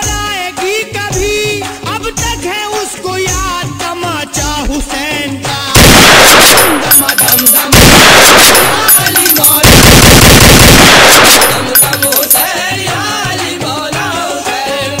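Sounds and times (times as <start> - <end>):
very loud rapid cracking: 5.8 - 12.4
procession music: 5.8 - 12.9.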